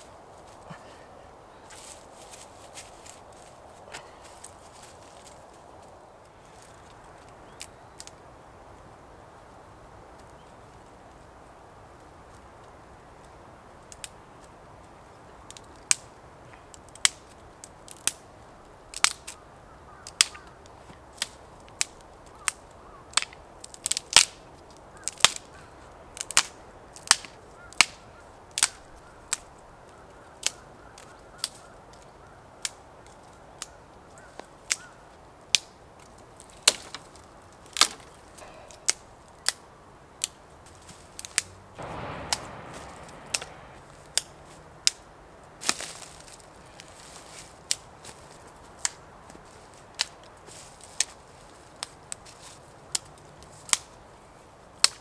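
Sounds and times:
rustling: 0.0 - 7.0, 40.6 - 44.6
faint steady hiss: 0.0 - 55.0
sharp knocks: 41.8 - 43.8.

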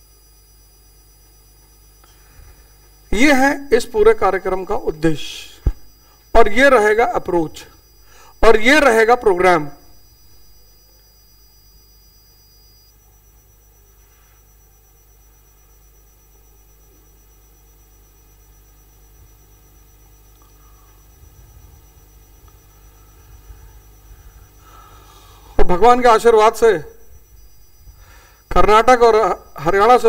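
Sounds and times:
faint high steady tones: 0.0 - 30.0
low hum: 0.0 - 30.0.

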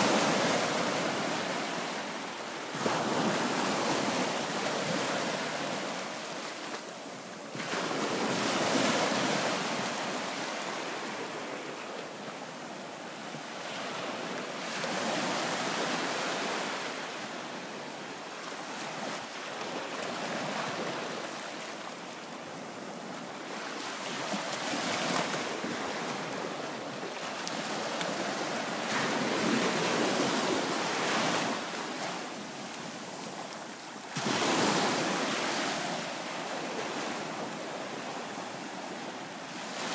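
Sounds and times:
small waves breaking on beach: 0.0 - 39.9.

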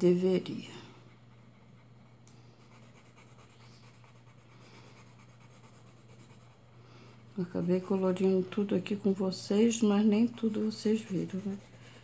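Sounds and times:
steady low hum: 0.0 - 12.0
pencil scratching on paper: 2.6 - 6.6, 7.4 - 12.0.

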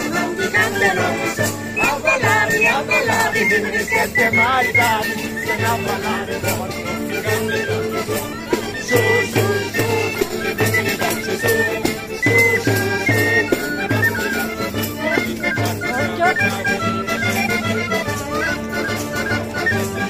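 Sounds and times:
accordion melody: 0.0 - 20.0
guitar: 0.0 - 20.0.

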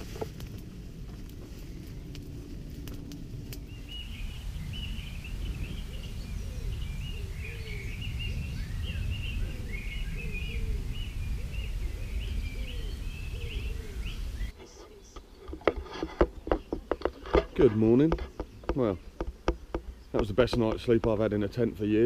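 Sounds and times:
steady low rumble: 0.0 - 14.6
campfire crackling: 0.0 - 22.0
songbirds chirping and trilling: 0.0 - 22.0
lower bird calls: 1.5 - 20.8.

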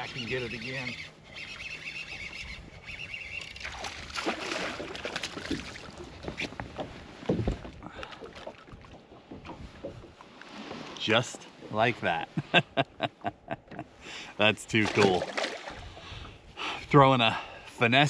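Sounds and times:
fishing reel cranking: 0.0 - 3.6
fish splashing in water: 3.5 - 6.0, 14.8 - 15.8.

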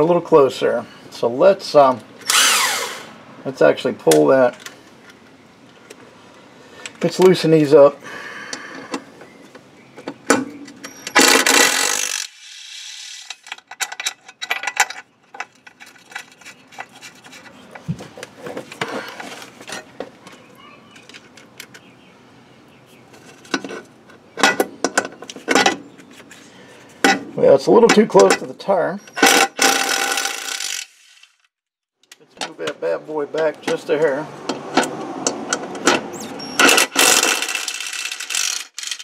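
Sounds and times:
metal scraping: 14.1 - 20.0.

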